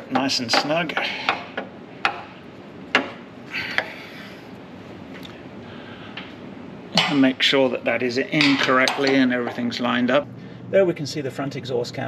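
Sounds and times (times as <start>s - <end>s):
hand tool knocking on metal: 0.0s - 2.3s.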